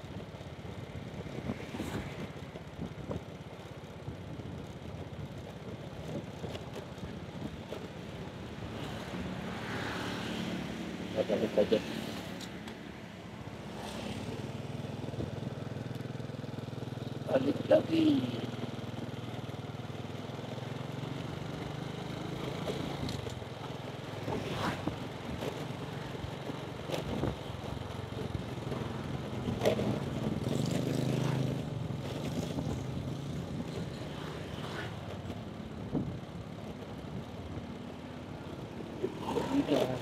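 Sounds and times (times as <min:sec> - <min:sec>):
motorcycle engine running: 0:13.3 - 0:40.0.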